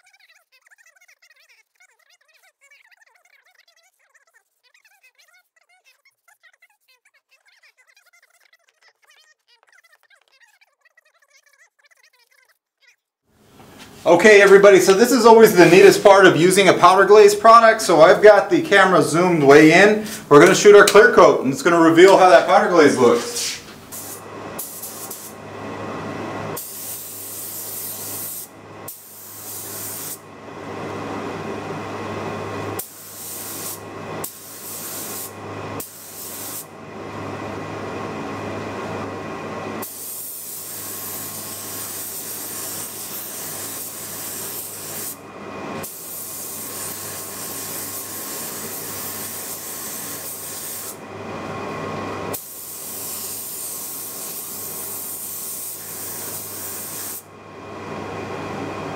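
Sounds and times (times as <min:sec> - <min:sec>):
steady low hum: 0:13.7 - 0:58.9
spray gun hissing: 0:14.8 - 0:17.0, 0:22.2 - 0:25.4, 0:26.5 - 0:30.2, 0:32.8 - 0:36.7, 0:39.8 - 0:45.2, 0:45.8 - 0:51.0, 0:52.3 - 0:57.3.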